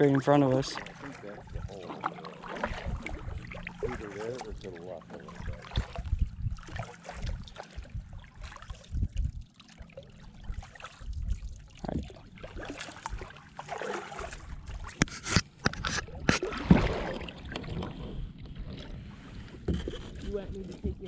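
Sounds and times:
kayak paddle splashing water: 0:00.0 - 0:20.2
wind on microphone: 0:00.8 - 0:01.8, 0:02.6 - 0:04.8, 0:05.4 - 0:09.5, 0:10.3 - 0:12.3.

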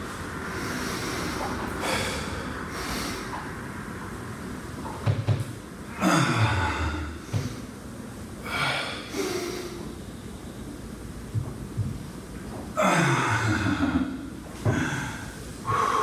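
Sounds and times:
man breathing hard: 0:00.4 - 0:03.3, 0:08.4 - 0:09.9, 0:14.7 - 0:16.0.

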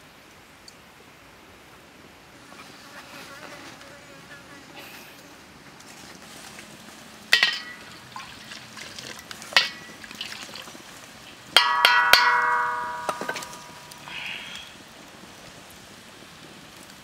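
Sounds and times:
metal cup knocking on wok: 0:11.6 - 0:13.8.

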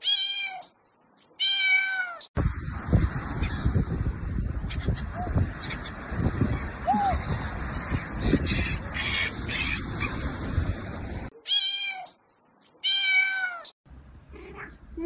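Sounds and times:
wind: 0:00.0 - 0:15.0
cat meowing: 0:01.4 - 0:02.3, 0:11.4 - 0:12.2, 0:12.8 - 0:13.7
surf: 0:02.4 - 0:11.3.

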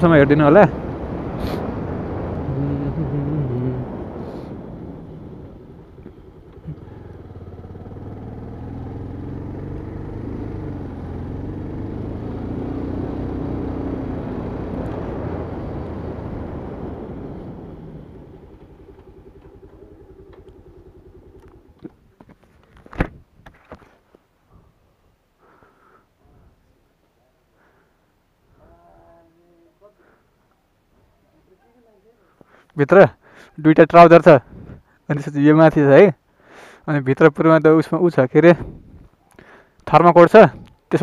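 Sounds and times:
motorcycle engine running: 0:04.7 - 0:22.2.

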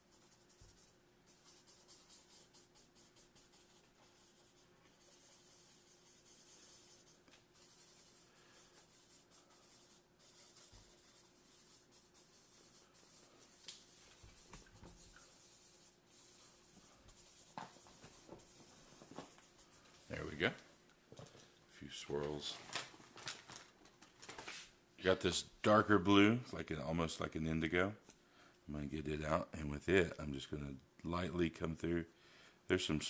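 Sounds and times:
marker scratching on paper: 0:00.0 - 0:20.2.

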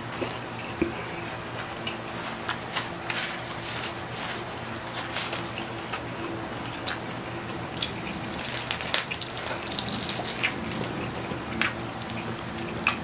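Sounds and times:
pork skin crackling: 0:07.7 - 0:13.0.

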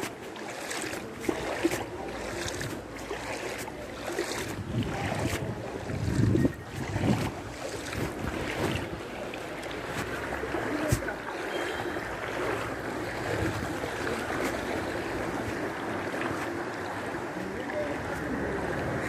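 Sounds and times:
floodwater sloshing: 0:00.0 - 0:19.0
wind on microphone: 0:04.3 - 0:09.1.

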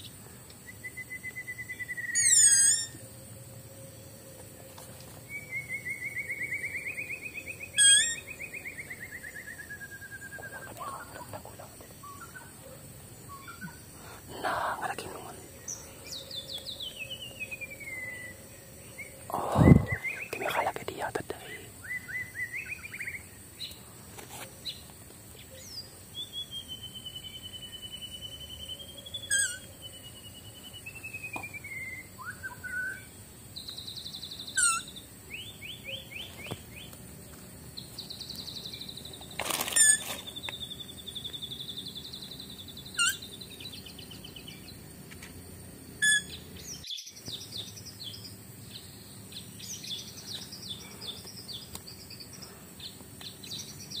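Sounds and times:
sharp downward-sweeping bird calls: 0:01.0 - 0:03.0.

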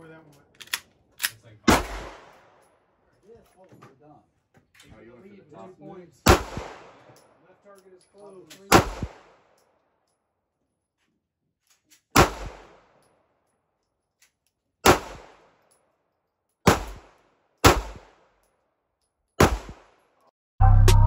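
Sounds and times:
pistol shots echoing: 0:01.7 - 0:02.6, 0:06.2 - 0:07.1, 0:08.7 - 0:09.5, 0:12.1 - 0:13.0, 0:14.8 - 0:15.6, 0:16.6 - 0:18.3, 0:19.4 - 0:20.0.

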